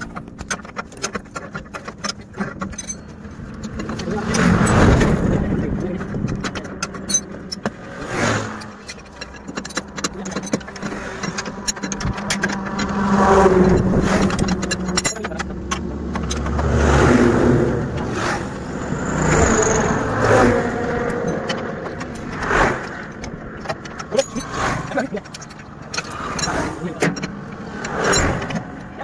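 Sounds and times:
road traffic passing: 0:00.0 - 0:29.0
wheel brace clicking on nuts: 0:00.0 - 0:29.0.

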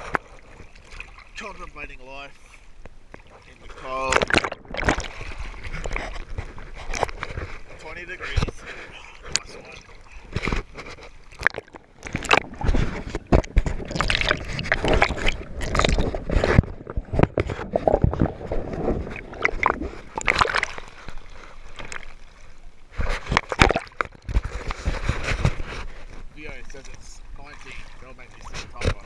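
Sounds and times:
sea water sloshing and splashing: 0:00.0 - 0:29.0.

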